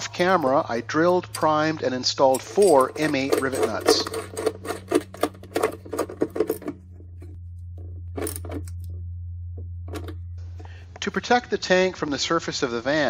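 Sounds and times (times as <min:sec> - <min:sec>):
steady low hum: 0:00.0 - 0:13.0
metal clicking and rattling: 0:02.2 - 0:09.0.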